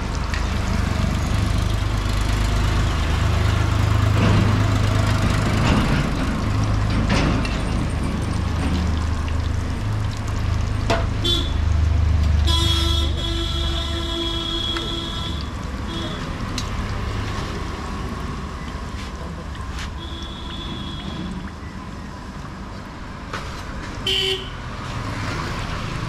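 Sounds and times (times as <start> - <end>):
food deep-frying in oil: 0.0 - 26.0
vehicle horn honking: 11.2 - 11.5, 12.5 - 16.2, 20.0 - 21.2, 24.0 - 24.6.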